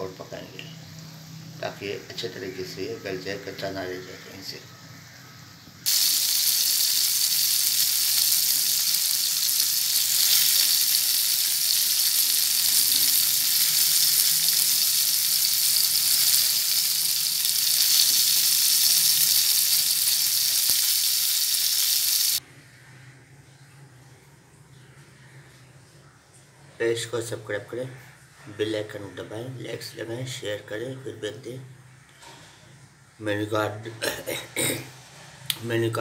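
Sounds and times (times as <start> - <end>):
oil sizzling in frying pan: 5.8 - 22.4.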